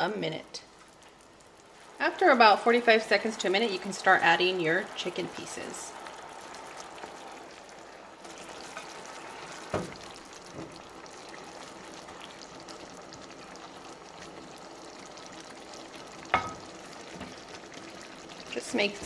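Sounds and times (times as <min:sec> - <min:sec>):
sauce simmering with bubbling hiss: 0:00.0 - 0:19.0.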